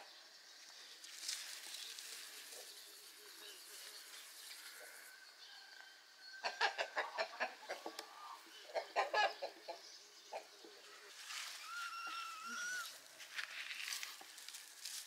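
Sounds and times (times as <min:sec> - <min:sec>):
chicken clucking: 0:06.4 - 0:11.1.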